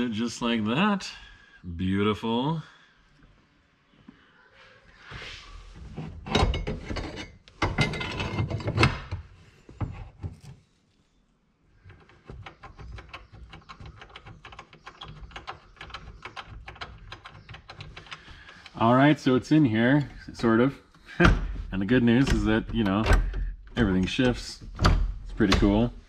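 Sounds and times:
metal bracket clunking and scraping: 0:05.7 - 0:10.6.

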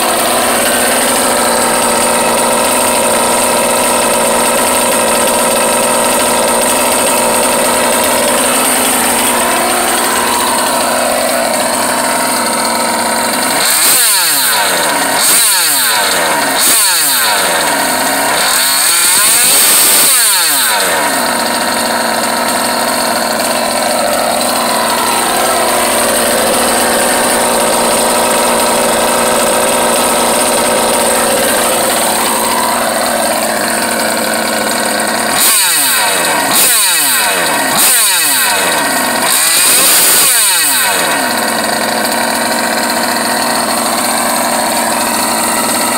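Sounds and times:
two-stroke engine idling and revving: 0:00.0 - 0:45.9.

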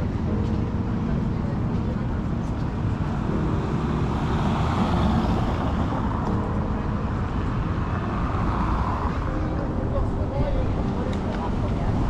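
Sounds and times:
city road traffic: 0:00.0 - 0:12.0.

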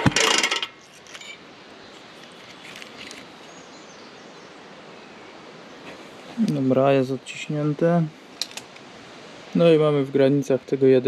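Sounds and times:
low steady hiss: 0:00.0 - 0:11.0.

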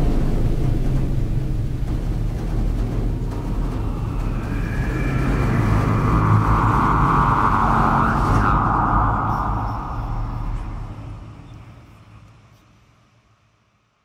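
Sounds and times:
deep rumble: 0:00.0 - 0:12.4
bright swell: 0:03.7 - 0:11.8.

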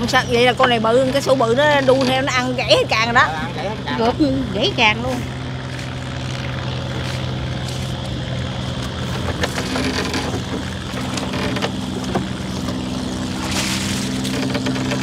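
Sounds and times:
boat engine running: 0:00.0 - 0:15.0
knocks and rattles: 0:07.6 - 0:15.0.

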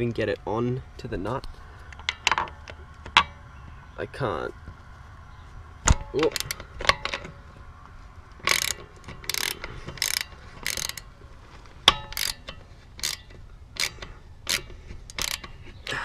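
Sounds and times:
hand ratchet clicking: 0:05.9 - 0:07.3, 0:08.4 - 0:11.1, 0:11.8 - 0:15.6.

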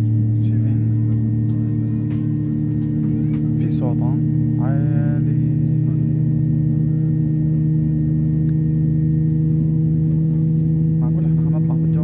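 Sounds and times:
airliner engine drone: 0:00.0 - 0:12.0.

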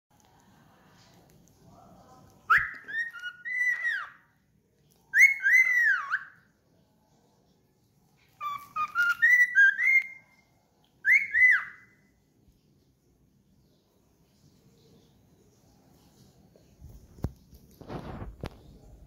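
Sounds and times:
cockatiel whistling a tune: 0:02.5 - 0:04.2, 0:05.1 - 0:06.4, 0:08.4 - 0:10.4, 0:11.0 - 0:12.0.

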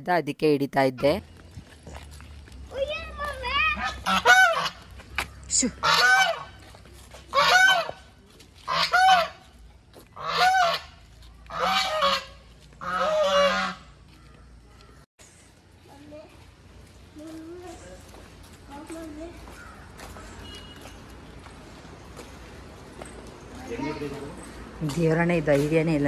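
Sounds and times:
goose honking: 0:03.8 - 0:04.9, 0:05.8 - 0:06.6, 0:07.3 - 0:08.0, 0:08.7 - 0:09.4, 0:10.2 - 0:13.9.

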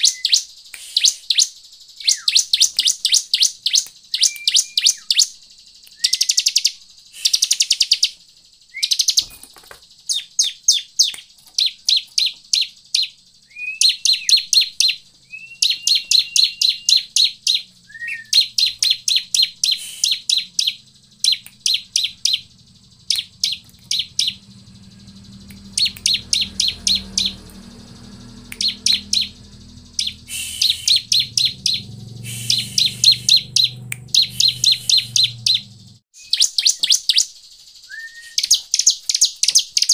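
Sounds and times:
faint low hum: 0:01.8 - 0:36.0
bird chattering calls: 0:10.1 - 0:37.3.

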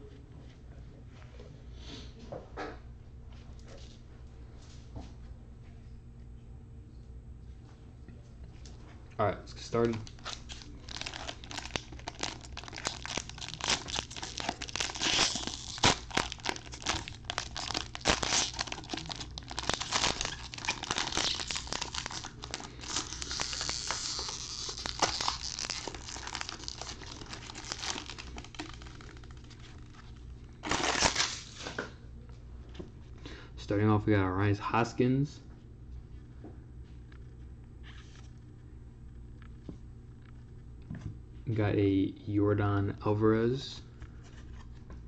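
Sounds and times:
foil wrapper crinkling and tearing: 0:09.6 - 0:31.8.

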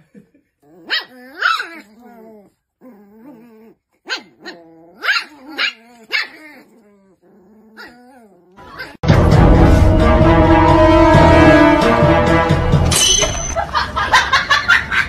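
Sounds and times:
dogs whiny growling: 0:00.6 - 0:09.0
small dogs barking: 0:00.8 - 0:01.9, 0:04.0 - 0:06.7.

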